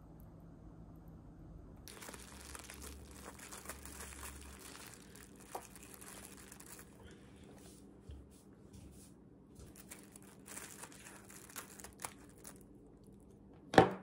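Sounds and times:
plastic wrap crinkling: 0:01.8 - 0:07.6, 0:09.6 - 0:13.2.

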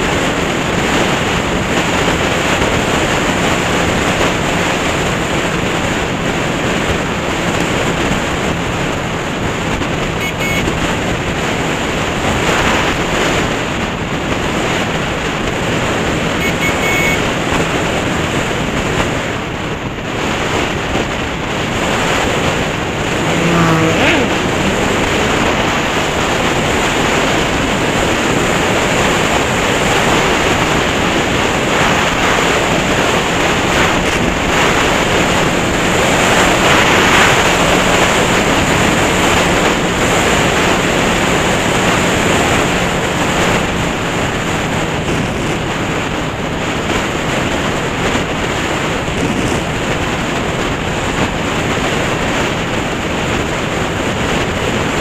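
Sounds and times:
motorcycle engine hum: 0:00.0 - 0:55.0
wind buffeting microphone: 0:17.2 - 0:55.0
brief rising tone: 0:23.2 - 0:25.8.

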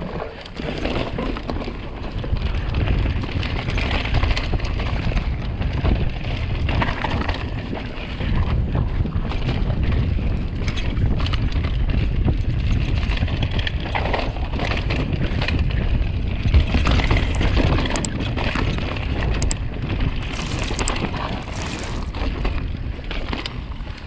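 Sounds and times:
tyres rolling over dirt: 0:00.0 - 0:02.7, 0:20.2 - 0:22.5
bike rattling over bumps: 0:00.0 - 0:24.0
wind rumbling on microphone: 0:00.0 - 0:24.0.

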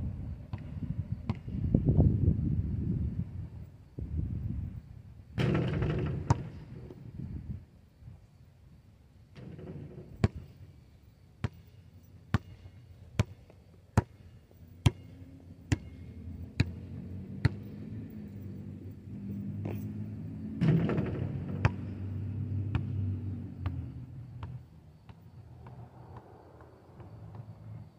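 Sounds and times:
basketball bouncing on asphalt: 0:00.5 - 0:01.7, 0:05.4 - 0:07.0, 0:09.4 - 0:10.7, 0:11.4 - 0:27.9.

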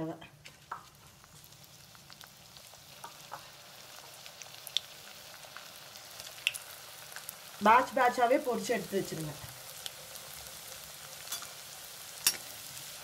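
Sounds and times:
potatoes sizzling in hot oil: 0:00.5 - 0:13.0.

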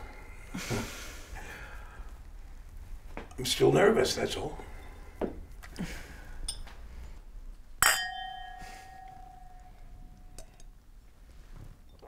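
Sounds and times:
wine glasses clinking and ringing: 0:06.4 - 0:06.7, 0:07.8 - 0:10.7.

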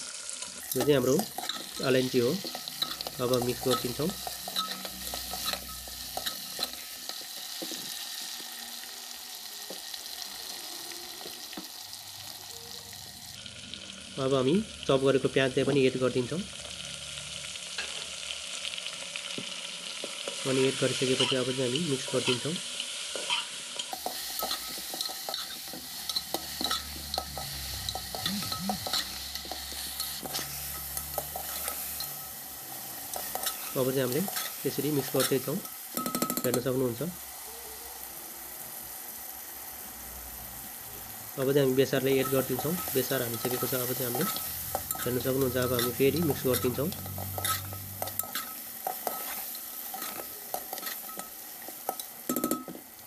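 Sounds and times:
meat sizzling in hot oil: 0:00.0 - 0:53.0
metal ladle scraping a pot: 0:23.2 - 0:32.4, 0:42.2 - 0:51.3
ladle scraping a metal pot: 0:42.3 - 0:51.3.

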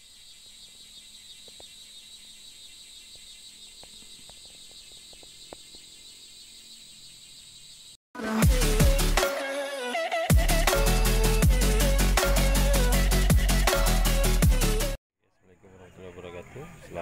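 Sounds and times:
insects chirring: 0:00.0 - 0:08.0.

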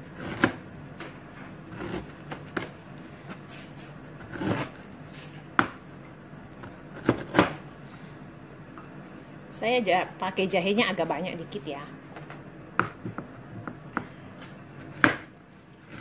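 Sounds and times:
knife chopping on plastic board: 0:00.2 - 0:00.6, 0:07.0 - 0:07.6, 0:12.7 - 0:14.1, 0:14.8 - 0:15.3.

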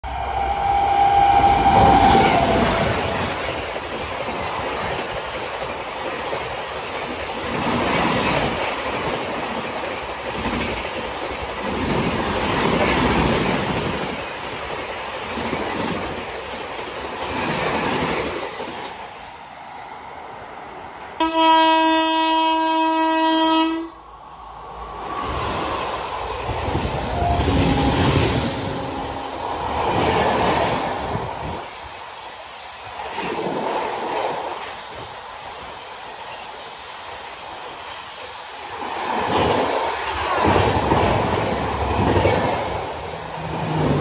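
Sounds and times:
train horn blast: 0:00.1 - 0:03.2, 0:21.2 - 0:24.0, 0:27.0 - 0:29.6.

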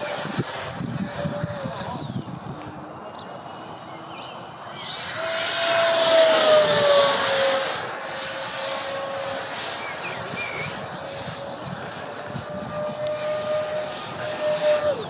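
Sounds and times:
jet fans whining: 0:00.0 - 0:15.0
rushing air: 0:04.4 - 0:15.0.

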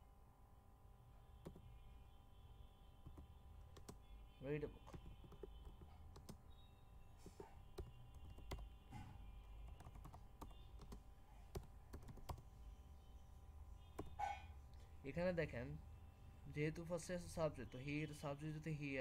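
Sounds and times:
typing on computer keyboard: 0:03.0 - 0:04.0, 0:04.8 - 0:06.4, 0:07.7 - 0:08.7, 0:09.6 - 0:12.4.

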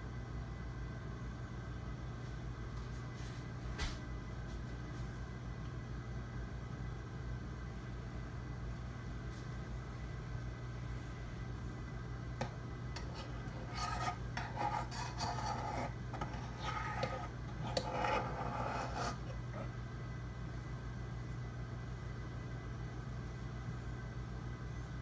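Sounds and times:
scraping and rubbing: 0:13.0 - 0:19.7.

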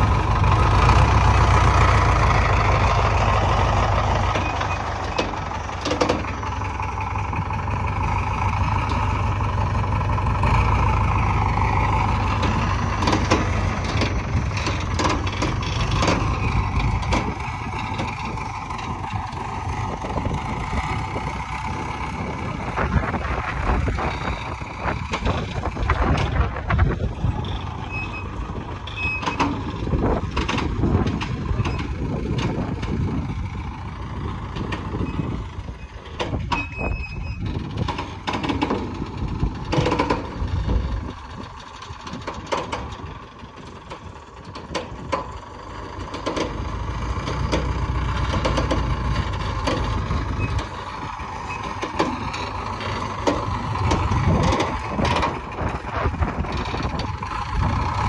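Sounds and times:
diesel engine running: 0:00.0 - 0:58.0
steel clanks and knocks: 0:04.1 - 0:06.5, 0:11.4 - 0:21.7, 0:36.0 - 0:40.5, 0:46.0 - 0:58.0.

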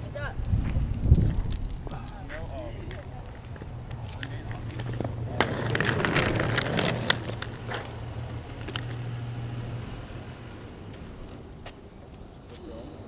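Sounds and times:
inline skates rolling on asphalt: 0:00.0 - 0:13.0
gritty crackles and scrapes: 0:00.1 - 0:12.3.

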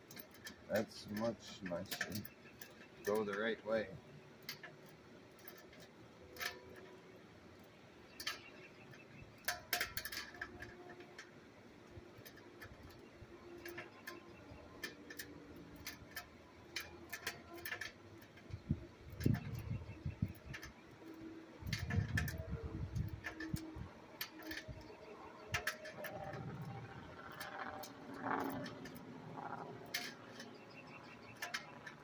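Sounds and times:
wrench clicking on bolts: 0:12.2 - 0:32.0.

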